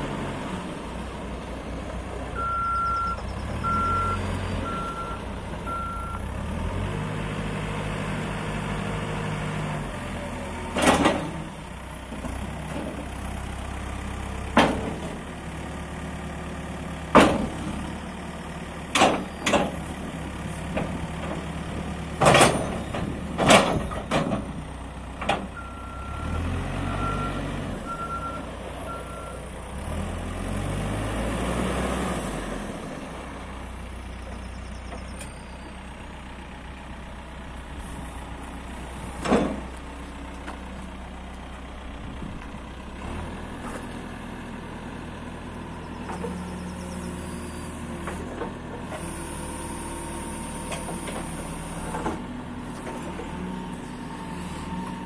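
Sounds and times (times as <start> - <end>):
diesel engine running: 0.0 - 55.0
reversing alarm beeping: 2.4 - 6.3, 25.6 - 29.4.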